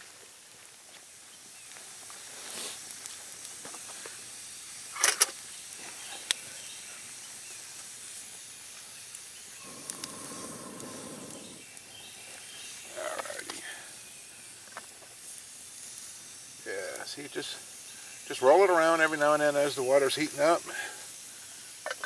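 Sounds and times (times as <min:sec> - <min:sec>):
campfire hissing: 0:00.0 - 0:22.0
fire snapping: 0:00.2 - 0:22.0
person blowing on coals: 0:09.5 - 0:12.1.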